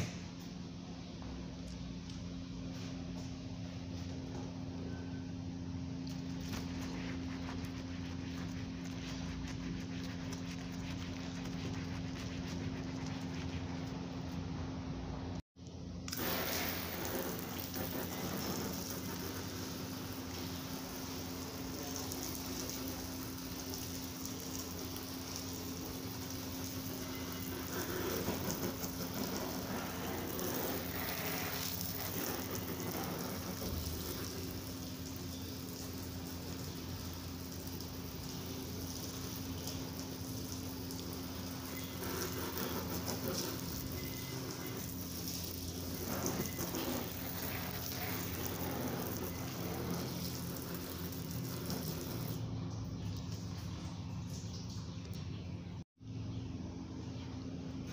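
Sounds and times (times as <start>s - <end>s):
hose spraying water on car: 6.0s - 14.4s, 16.1s - 52.5s.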